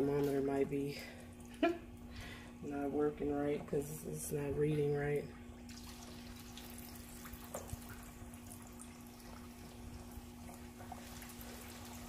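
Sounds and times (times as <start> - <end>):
steady low hum: 0.0 - 12.0
oil sizzling with pops: 5.4 - 12.0.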